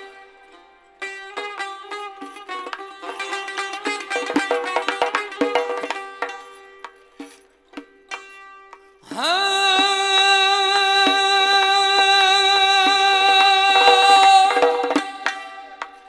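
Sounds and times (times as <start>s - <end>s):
plucked long-necked lute: 0.0s - 16.0s
man singing a long note: 9.2s - 16.0s.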